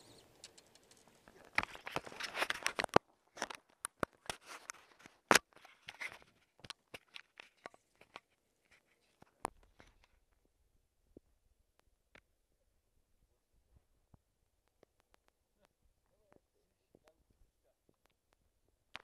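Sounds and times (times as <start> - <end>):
dense crackle: 0.0 - 12.3
sharp clicks and scrapes: 0.2 - 10.2.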